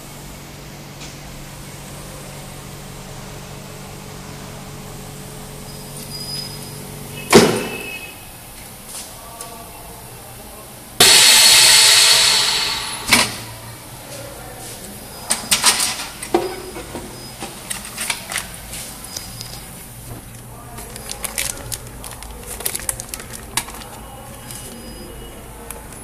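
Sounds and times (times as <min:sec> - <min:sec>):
air hissing into vacuum sealer: 0:11.0 - 0:13.8
plastic bag crackling: 0:19.2 - 0:24.8.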